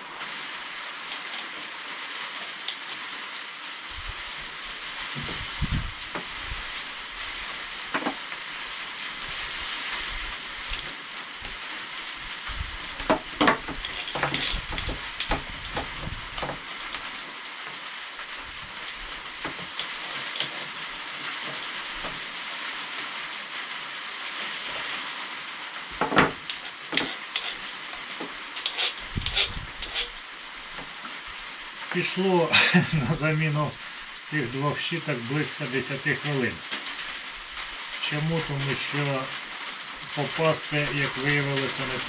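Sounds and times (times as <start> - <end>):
steady hiss: 0.0 - 42.0
grinder parts clicking and knocking: 13.0 - 16.6, 26.0 - 30.1.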